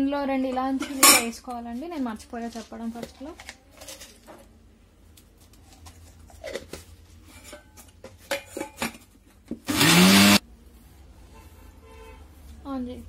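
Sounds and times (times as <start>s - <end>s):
mixer grinder motor grinding: 9.7s - 10.4s.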